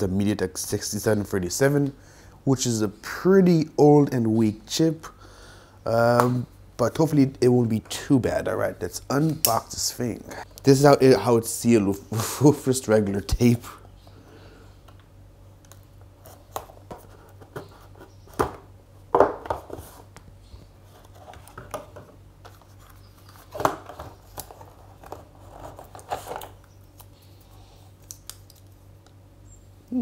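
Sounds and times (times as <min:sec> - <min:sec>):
cardboard and plastic rustling: 0:16.2 - 0:26.6.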